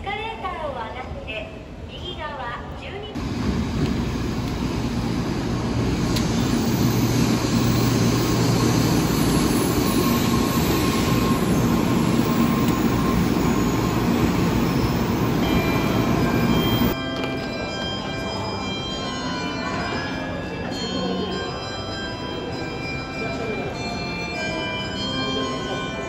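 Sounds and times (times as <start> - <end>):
train rumbling: 3.2 - 21.9.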